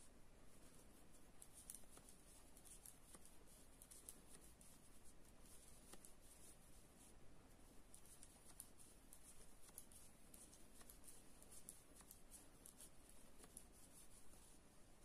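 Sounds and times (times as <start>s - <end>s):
knitting needles clicking: 1.4s - 6.6s, 7.9s - 14.6s.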